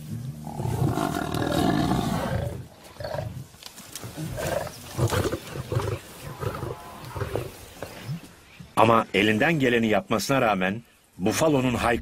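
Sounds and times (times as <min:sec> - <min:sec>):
lions growling: 0:00.4 - 0:08.2.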